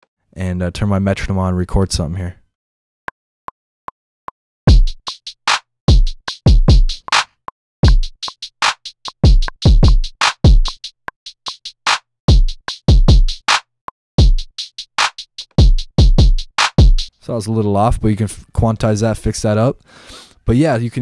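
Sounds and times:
kick drum hits: 4.7s - 5.0s, 5.9s - 7.0s, 9.2s - 10.7s, 12.3s - 13.4s, 14.2s - 14.4s, 15.6s - 17.1s
hi-hats: 4.7s - 7.2s, 7.9s - 11.8s, 14.2s - 17.2s.

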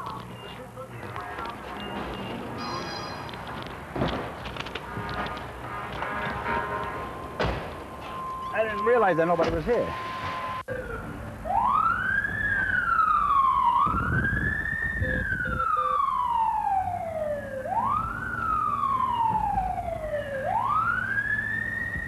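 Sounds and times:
emergency siren wailing: 5.0s - 22.0s.

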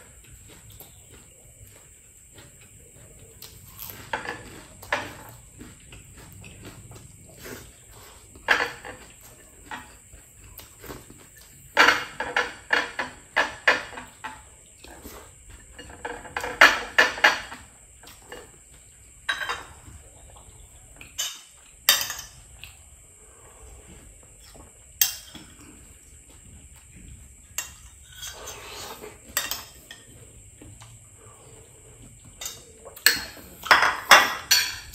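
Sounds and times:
cutlery clattering on plates: 4.0s - 5.4s, 8.4s - 9.1s, 11.8s - 14.5s, 15.7s - 18.6s, 19.3s - 19.9s, 21.1s - 22.5s, 25.0s - 25.6s, 27.6s - 30.1s, 32.4s - 34.9s.

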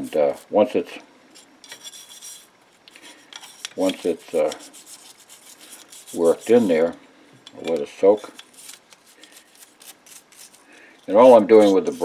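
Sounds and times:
brush scrubbing metal: 3.4s - 6.9s, 7.8s - 12.0s
person speaking: 3.8s - 4.8s, 6.0s - 8.4s, 11.1s - 12.0s.

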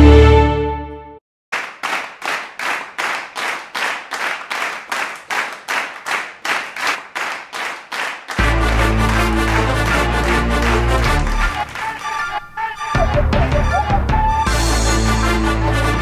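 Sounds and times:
hand claps: 1.6s - 14.3s
loud music with low beat: 8.4s - 12.0s, 12.9s - 16.0s.

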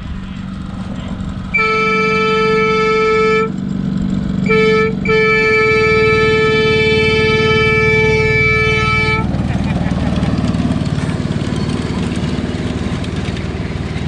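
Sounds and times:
low steady rumble: 0.0s - 14.0s
locomotive signal blasts: 1.5s - 3.6s, 4.4s - 9.3s.

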